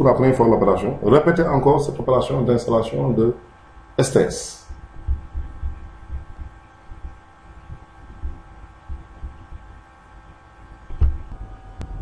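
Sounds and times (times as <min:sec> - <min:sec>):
electrical hum: 0:00.0 - 0:12.0
faint low thumps: 0:04.6 - 0:12.0.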